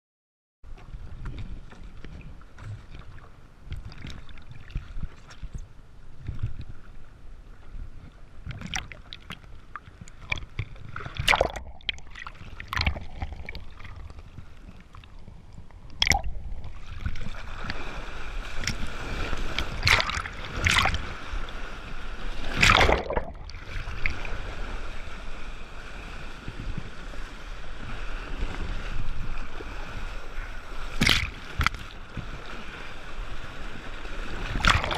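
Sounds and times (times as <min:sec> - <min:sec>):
water rushing under board: 0:00.7 - 0:34.9
water sloshing and splashing: 0:00.7 - 0:34.9
water slapping: 0:08.4 - 0:25.3, 0:28.3 - 0:34.9
hard splashes: 0:10.2 - 0:14.1, 0:16.0 - 0:24.6, 0:30.9 - 0:32.0, 0:34.3 - 0:34.9.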